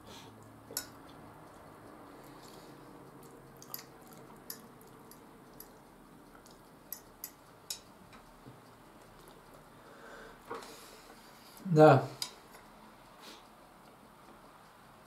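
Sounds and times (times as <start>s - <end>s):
soft chewing: 0.1s - 11.6s, 12.2s - 15.0s
metal fork clicking on ceramic bowl: 0.7s - 1.1s, 3.6s - 5.8s, 6.4s - 7.9s.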